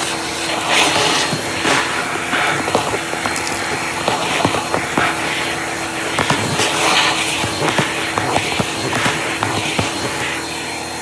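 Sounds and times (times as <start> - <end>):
vacuum cleaner running: 0.0 - 11.0.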